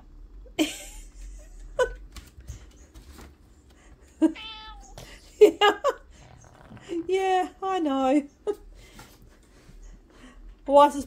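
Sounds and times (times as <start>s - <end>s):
cat chirping meows: 4.4s - 5.0s
cat meowing: 4.4s - 5.1s.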